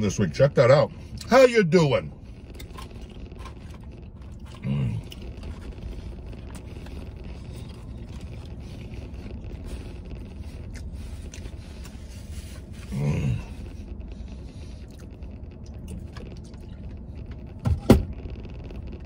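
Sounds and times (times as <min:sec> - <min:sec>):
low cabin rumble: 0:00.0 - 0:19.0
chewing: 0:02.4 - 0:13.8, 0:14.6 - 0:17.0
man humming: 0:12.9 - 0:13.6.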